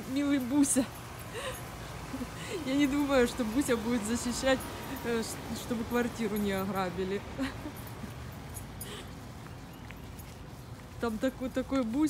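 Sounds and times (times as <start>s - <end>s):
faint ticks and scuffs: 8.0s - 12.0s.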